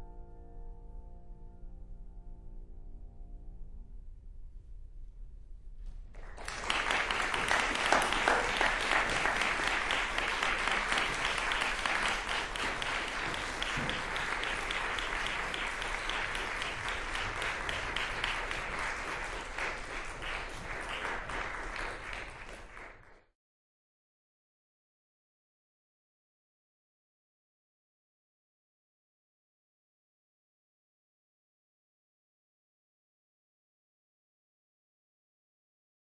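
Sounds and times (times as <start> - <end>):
crowd applauding: 6.1 - 23.3.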